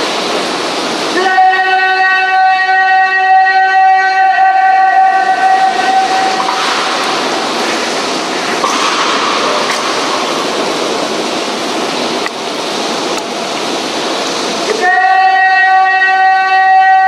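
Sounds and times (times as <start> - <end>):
heavy rain falling: 2.4 - 15.0.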